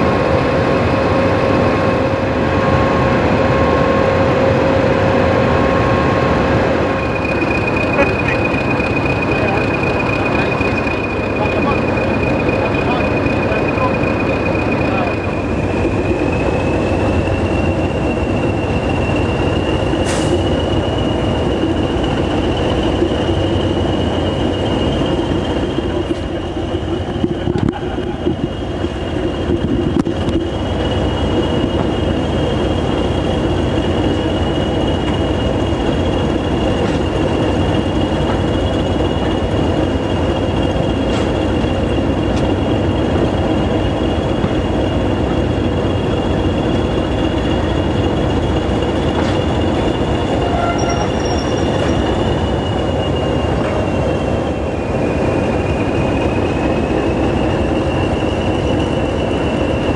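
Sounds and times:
diesel locomotive engines: 0:00.0 - 0:59.9
steady high whistle: 0:06.9 - 0:26.0, 0:47.7 - 0:59.9.

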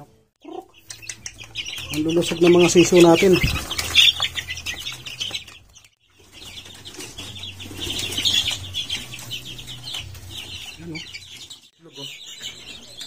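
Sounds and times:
chicks peeping: 0:00.0 - 0:13.0
wings flapping: 0:00.9 - 0:10.8.

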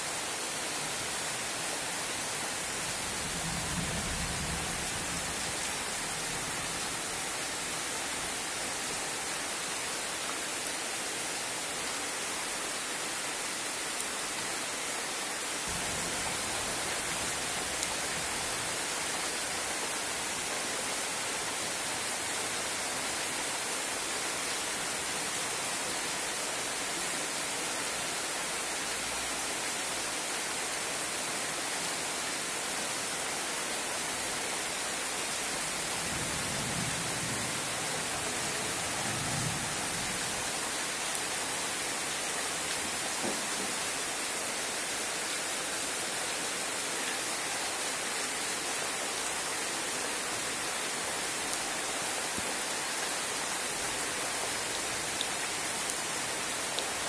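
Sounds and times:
heavy rain on pond and trees: 0:00.0 - 0:57.0.

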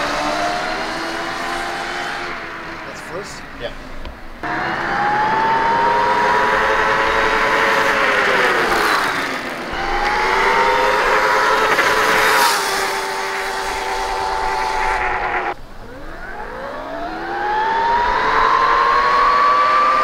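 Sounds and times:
rushing noise: 0:04.3 - 0:20.0
electric motor whining: 0:04.4 - 0:20.0.

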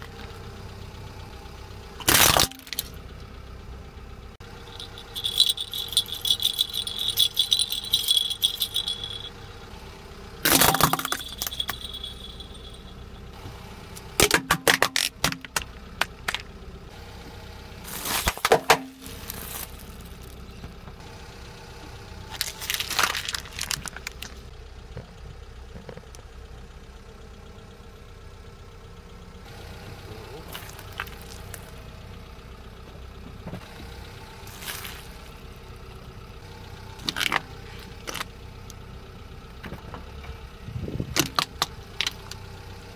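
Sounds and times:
car engine idling: 0:00.0 - 0:42.9
tyre crushing plastic toys: 0:02.0 - 0:03.0, 0:10.4 - 0:12.0, 0:17.9 - 0:20.3, 0:22.3 - 0:24.4, 0:30.5 - 0:31.7, 0:34.5 - 0:35.2
plastic baby rattle jingling: 0:04.7 - 0:09.3, 0:10.5 - 0:12.9.

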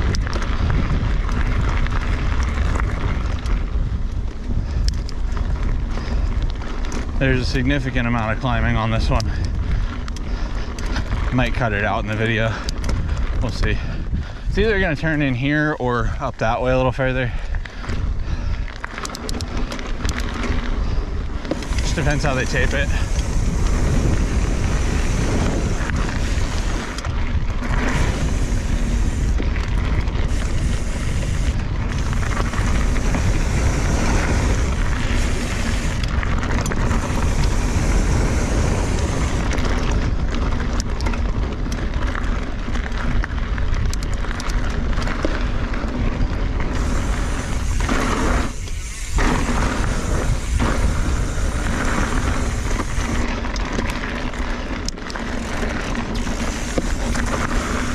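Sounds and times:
tyres rolling over rocky dirt: 0:00.0 - 0:57.9
wind rumble on microphone: 0:00.0 - 0:57.9.

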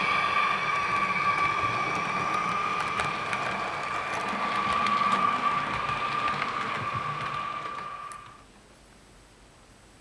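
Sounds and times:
model train whine: 0:00.0 - 0:08.4
wheels clicking over rail joints: 0:00.0 - 0:08.4.

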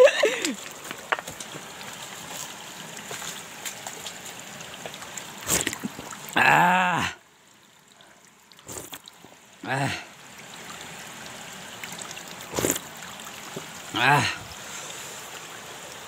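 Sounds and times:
water trickling onto stones: 0:00.0 - 0:16.0
water splash: 0:02.3 - 0:06.5, 0:08.6 - 0:09.2, 0:11.8 - 0:14.4.

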